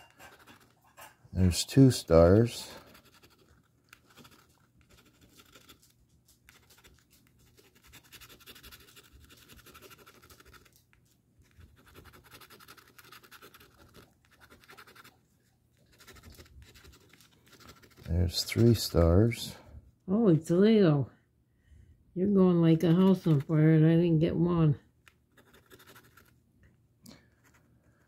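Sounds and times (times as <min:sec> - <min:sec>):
coin scratching lottery ticket: 0:06.5 - 0:10.7, 0:11.7 - 0:15.1, 0:25.3 - 0:26.3.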